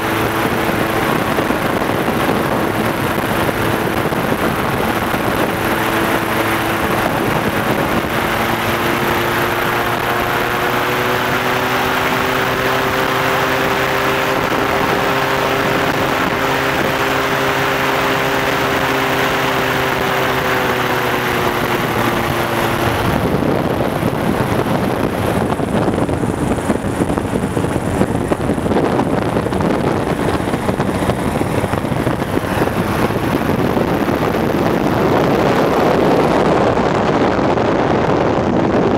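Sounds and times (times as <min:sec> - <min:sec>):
propeller engine droning: 0:00.0 - 0:38.9
wind on microphone: 0:00.0 - 0:38.9.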